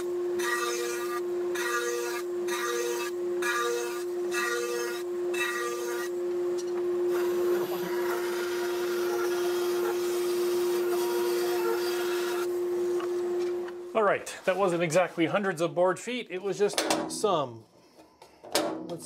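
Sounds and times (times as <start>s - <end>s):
bandsaw cutting wood: 0.0s - 6.2s, 7.1s - 12.5s
machine hum: 0.0s - 15.8s.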